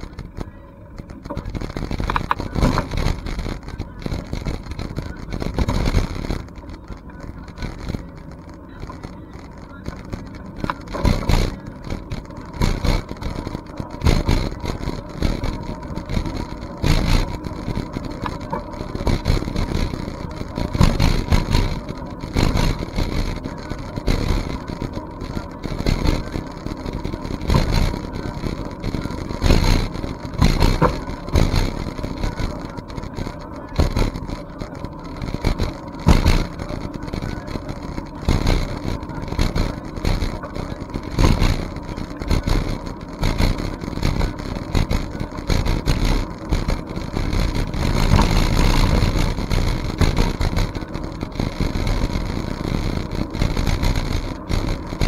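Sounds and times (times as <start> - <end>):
bicycle ride rumble: 0.0 - 55.0.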